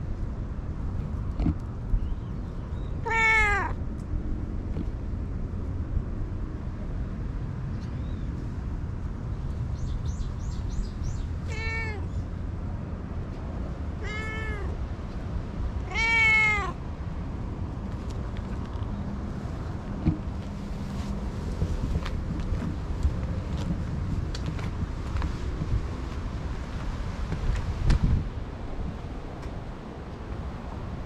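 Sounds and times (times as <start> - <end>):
cat meowing: 3.0 - 3.8, 11.4 - 12.1, 14.0 - 14.8, 15.8 - 16.8.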